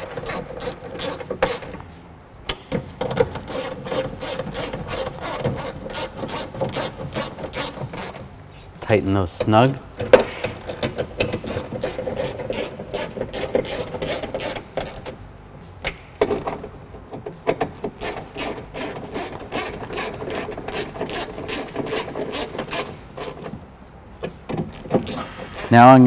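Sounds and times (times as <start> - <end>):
hand ratchet clicking: 0.0 - 1.8, 2.5 - 8.3, 10.1 - 15.2, 17.5 - 23.6, 24.5 - 26.0.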